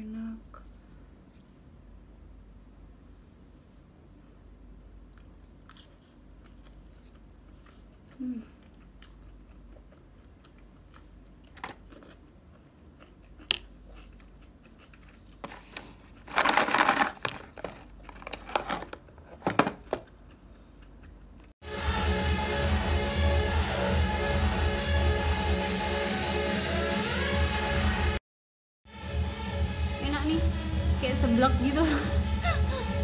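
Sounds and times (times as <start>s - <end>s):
faint chewing: 4.7s - 16.3s, 17.8s - 21.6s
plastic lid crinkling: 15.4s - 20.1s.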